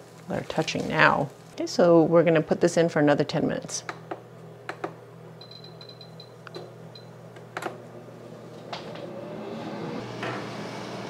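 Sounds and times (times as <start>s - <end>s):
fan rush of air: 7.4s - 11.0s.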